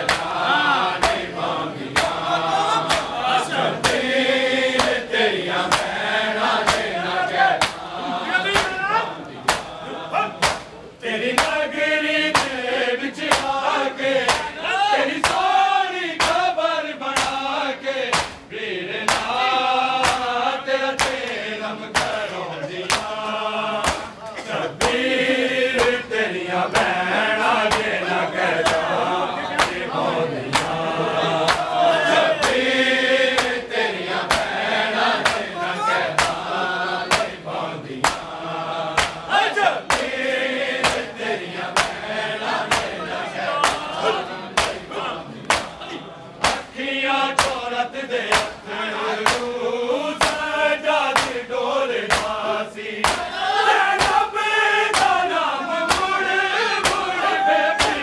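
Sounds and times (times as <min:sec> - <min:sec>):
open-hand slaps on bare chests: 0:00.0 - 0:03.2, 0:03.8 - 0:04.1, 0:04.7 - 0:06.0, 0:06.6 - 0:07.0, 0:07.6 - 0:07.9, 0:08.5 - 0:08.8, 0:09.5 - 0:09.8, 0:10.4 - 0:10.8, 0:11.4 - 0:11.6, 0:12.3 - 0:12.7, 0:13.3 - 0:13.6, 0:14.2 - 0:14.6, 0:15.2 - 0:15.5, 0:16.2 - 0:17.5, 0:18.1 - 0:19.4, 0:20.0 - 0:25.0, 0:25.8 - 0:26.1, 0:26.7 - 0:27.0, 0:27.6 - 0:28.0, 0:28.6 - 0:28.9, 0:29.6 - 0:29.9, 0:30.5 - 0:30.8, 0:31.4 - 0:31.8, 0:32.4 - 0:32.7, 0:33.3 - 0:34.6, 0:35.2 - 0:35.5, 0:36.2 - 0:36.5, 0:37.1 - 0:37.4, 0:38.0 - 0:39.3, 0:39.9 - 0:40.2, 0:40.8 - 0:41.1, 0:41.7 - 0:42.0, 0:42.6 - 0:43.0, 0:43.6 - 0:44.0, 0:44.6 - 0:45.8, 0:46.4 - 0:47.7, 0:48.3 - 0:48.6, 0:49.2 - 0:49.6, 0:50.2 - 0:50.5, 0:51.1 - 0:51.5, 0:52.1 - 0:52.4, 0:53.0 - 0:53.3, 0:54.0 - 0:54.3, 0:54.9 - 0:55.3, 0:55.9 - 0:56.2, 0:56.8 - 0:57.1, 0:57.7 - 0:58.0
men chanting in chorus: 0:00.0 - 0:58.0.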